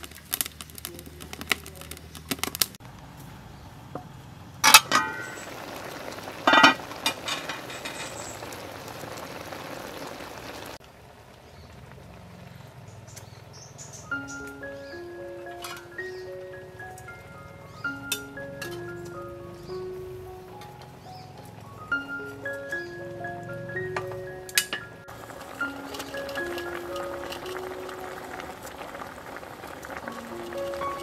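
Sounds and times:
pot simmering hiss: 0.0 - 2.8, 4.6 - 13.6, 14.2 - 31.0
wood fire crackling: 0.0 - 31.0
metal pot and lid clanking: 4.6 - 5.6, 6.4 - 8.4, 15.5 - 15.9, 18.1 - 18.9, 24.0 - 27.7
music with mallet notes: 14.1 - 28.5, 30.1 - 31.0.

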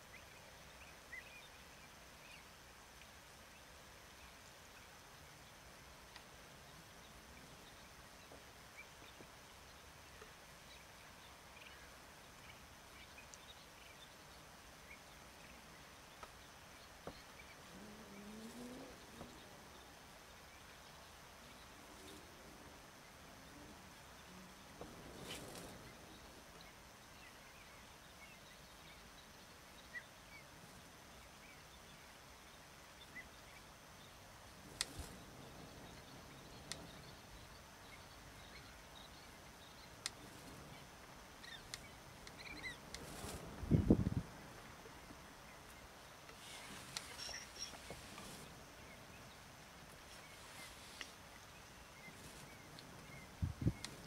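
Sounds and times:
faint bird chirps: 3.4 - 44.2, 44.9 - 54.0
soft clicks: 45.7 - 48.3.

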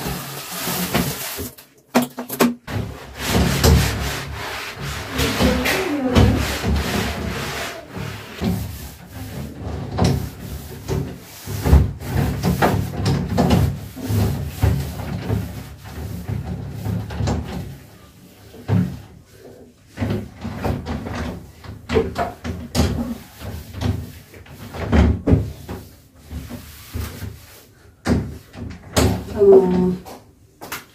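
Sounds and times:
cloth wiping glass panels: 2.8 - 17.8.

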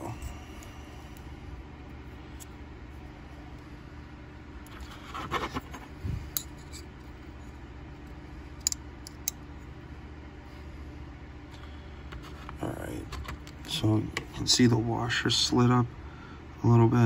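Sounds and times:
metal knife parts scraping: 6.3 - 7.0.

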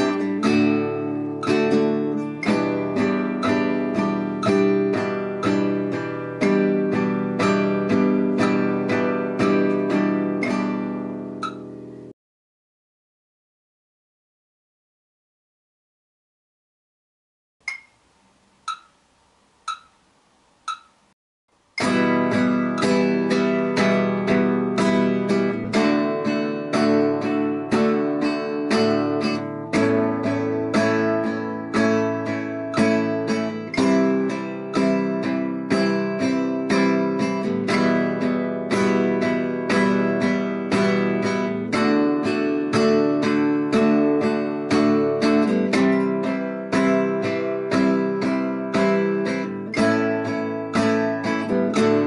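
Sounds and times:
classical guitar strummed: 0.0 - 12.1, 21.6 - 52.0
count-in clicks: 1.4 - 4.8, 11.4 - 11.7, 17.6 - 18.0, 18.6 - 19.0, 19.6 - 20.0, 20.6 - 21.2.

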